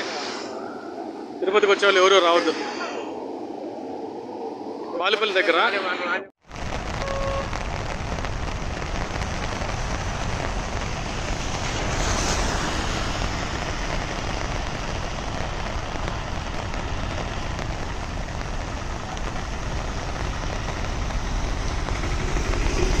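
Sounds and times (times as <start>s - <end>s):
heavy rain falling: 6.4s - 23.0s
low rumble: 6.4s - 23.0s.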